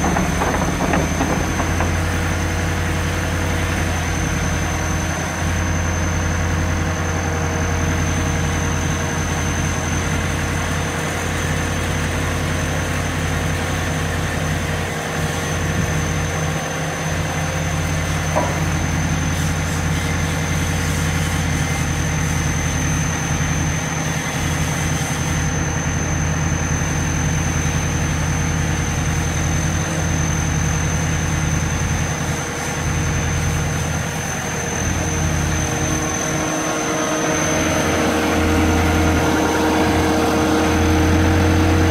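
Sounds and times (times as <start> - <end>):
high engine whine: 30.1 - 41.9.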